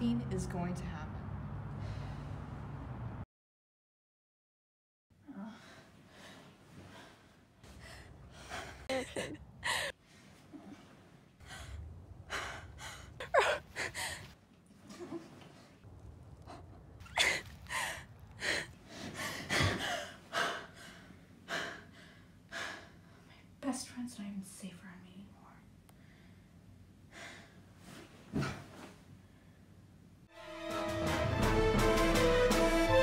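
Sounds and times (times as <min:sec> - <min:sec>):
woman gasping and breathing hard: 0:05.2 - 0:10.0, 0:11.4 - 0:14.4, 0:17.1 - 0:23.0.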